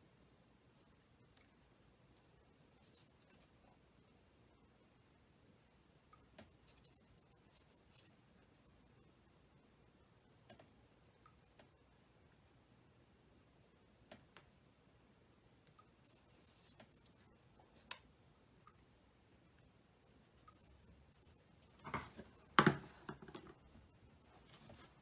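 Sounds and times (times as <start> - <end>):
wires rustling: 0.7 - 4.6, 18.7 - 25.0.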